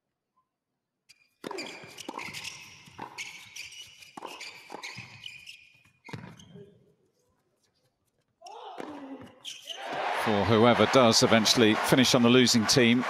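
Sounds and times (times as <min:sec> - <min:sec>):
shoes squeaking on court: 0:01.1 - 0:10.0
rackets hitting tennis ball: 0:01.4 - 0:06.4.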